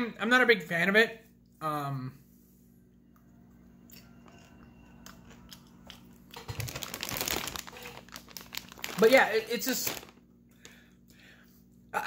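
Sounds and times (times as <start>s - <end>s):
popcorn crunching: 3.9s - 11.2s.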